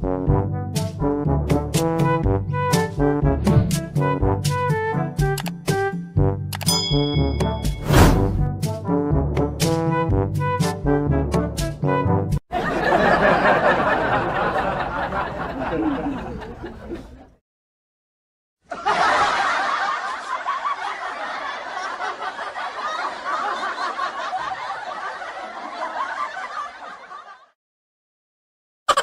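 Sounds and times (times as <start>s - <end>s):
crowd laughing: 12.5s - 17.4s, 18.7s - 27.6s.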